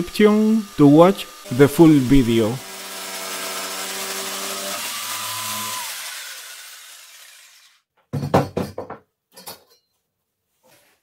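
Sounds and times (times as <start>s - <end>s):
jigsaw motor running down: 0.6s - 7.8s.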